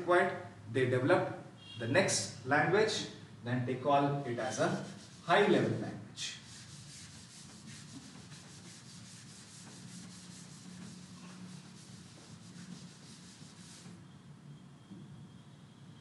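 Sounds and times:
duster rubbing on chalkboard: 0:04.4 - 0:14.0.

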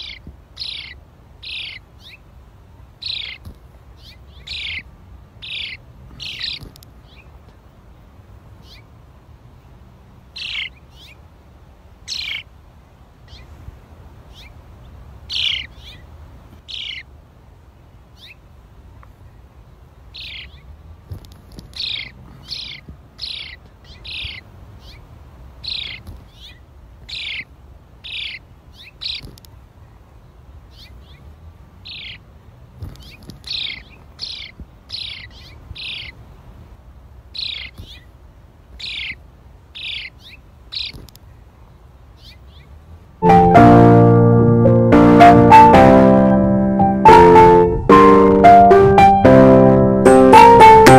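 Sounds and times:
songbird sharp chirps: 0:03.0 - 0:07.3, 0:32.9 - 0:36.2, 0:39.8 - 0:41.2.

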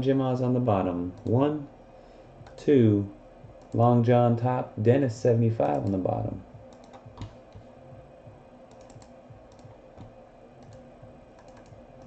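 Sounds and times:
low room hum: 0:00.0 - 0:12.0
keyboard and mouse clicks: 0:03.6 - 0:03.8, 0:06.7 - 0:07.7, 0:08.7 - 0:12.0.

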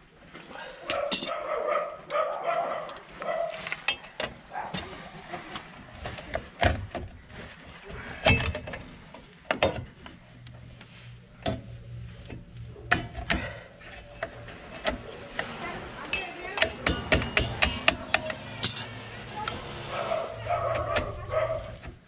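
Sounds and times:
pliers handling brake springs: 0:00.9 - 0:01.3, 0:03.8 - 0:04.4, 0:16.1 - 0:19.7
brake drum coming off hub: 0:12.4 - 0:22.0
metallic clicks and knocks: 0:16.1 - 0:19.6.

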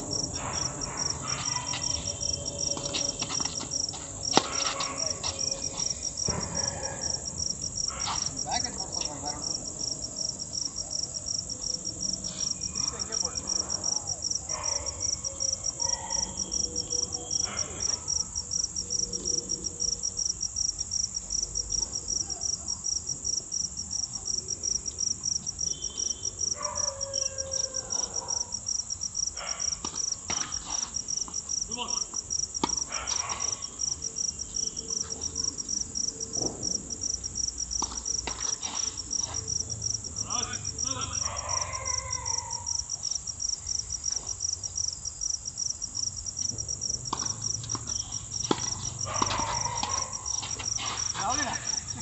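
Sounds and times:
crickets chirping: 0:00.0 - 0:52.0
tennis ball struck with rackets: 0:47.1 - 0:50.6.

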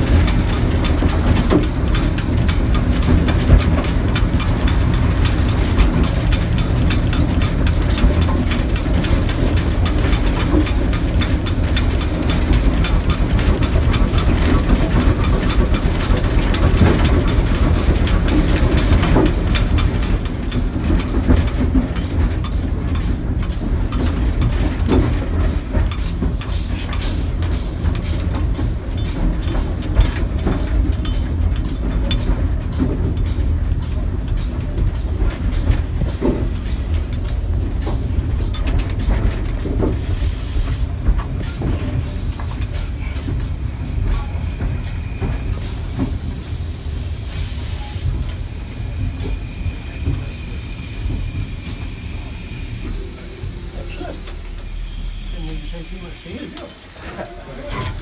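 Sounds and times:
steam locomotive rumble: 0:00.0 - 0:58.0
wheels clattering over rail joints: 0:00.0 - 0:58.0
short steam hisses: 0:40.0 - 0:41.0, 0:47.3 - 0:57.2.

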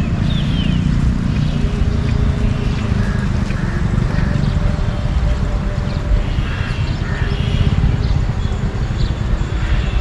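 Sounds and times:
wind buffeting microphone: 0:02.8 - 0:10.0.

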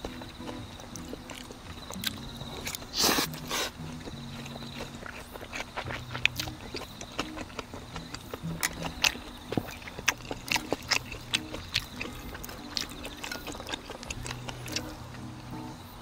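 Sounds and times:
slurping and eating sounds: 0:00.0 - 0:15.3.

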